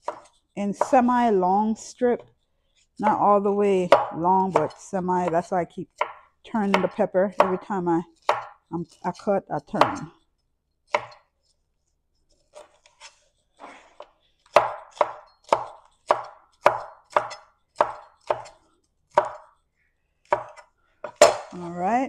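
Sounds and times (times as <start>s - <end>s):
knife cutting on wooden board: 0.0s - 0.9s, 12.3s - 19.6s.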